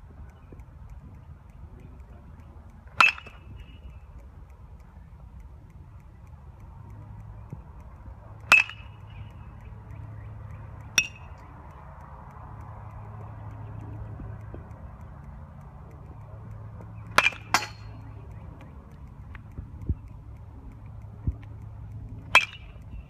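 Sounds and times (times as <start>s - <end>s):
metal bat pinging ball: 2.9s - 4.0s, 8.4s - 11.8s, 15.7s - 18.6s, 22.2s - 23.0s.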